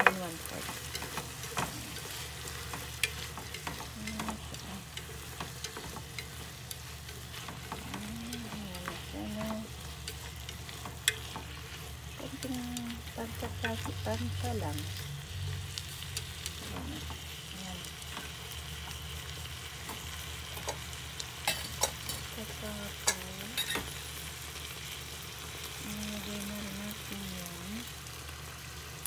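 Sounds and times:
chopsticks clicking against pot: 0:00.0 - 0:14.2
food sizzling in a pot: 0:00.0 - 0:29.0.

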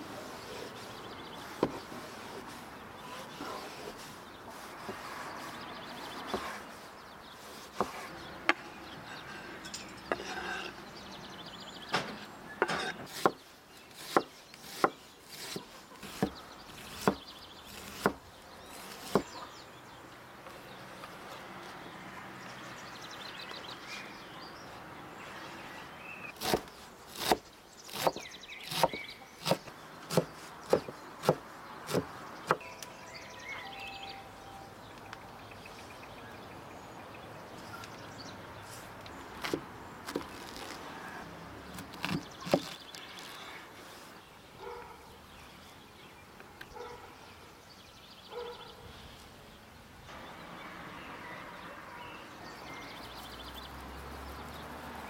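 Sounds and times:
knife chopping on wooden board: 0:12.6 - 0:13.4, 0:14.0 - 0:18.2, 0:18.8 - 0:19.4, 0:26.4 - 0:32.6, 0:41.8 - 0:43.3.

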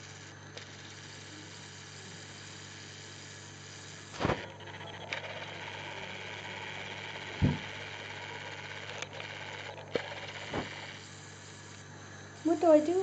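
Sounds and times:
steady low hum: 0:00.0 - 0:13.0
thumps on wooden floor: 0:07.4 - 0:07.6.

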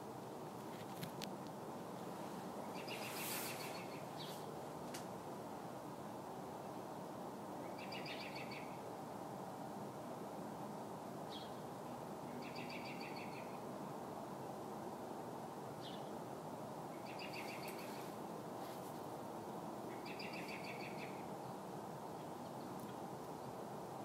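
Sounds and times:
low background noise: 0:00.0 - 0:24.0
bird distress calls: 0:17.0 - 0:18.1, 0:19.9 - 0:21.2.

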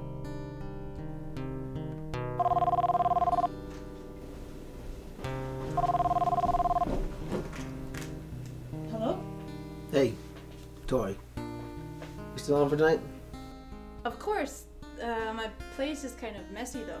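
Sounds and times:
telephone ringing: 0:02.4 - 0:03.5, 0:05.8 - 0:07.0
background score music: 0:03.5 - 0:17.0.

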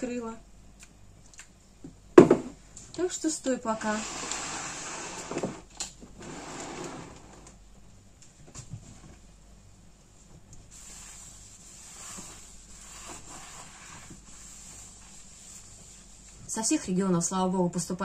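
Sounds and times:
cloth rubbing: 0:10.7 - 0:16.5.

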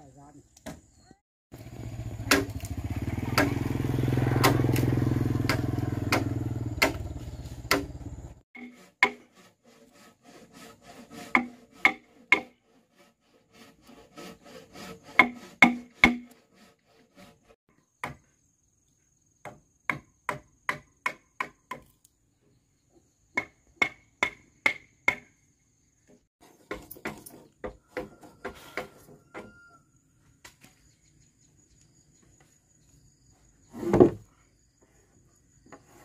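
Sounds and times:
sharp blows on wood: 0:02.2 - 0:02.7, 0:03.3 - 0:03.7, 0:04.4 - 0:08.0, 0:08.6 - 0:18.2.

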